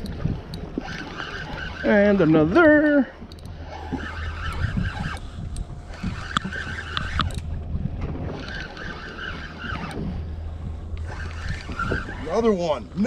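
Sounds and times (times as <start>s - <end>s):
fishing reel gears whirring: 0.0s - 13.0s
low steady hum: 0.0s - 13.0s
wind buffeting microphone: 0.0s - 13.0s
sharp clicks: 3.3s - 7.5s.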